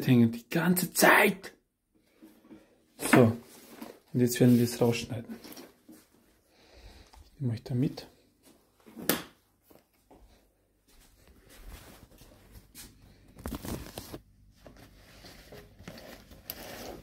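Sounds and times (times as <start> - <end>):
fabric bag rustling: 3.4 - 6.3, 11.4 - 17.0.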